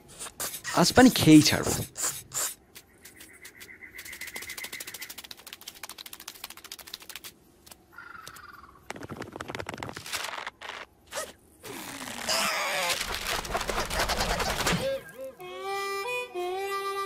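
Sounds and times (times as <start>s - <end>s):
paper rustling and crumpling: 12.0s - 14.8s
fast scratching on paper: 13.2s - 14.8s.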